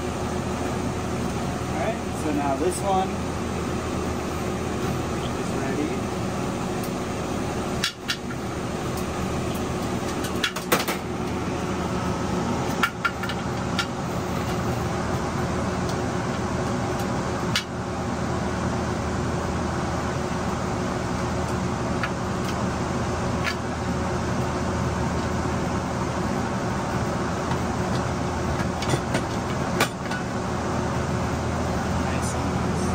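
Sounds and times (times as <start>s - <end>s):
fan humming: 0.0s - 32.9s.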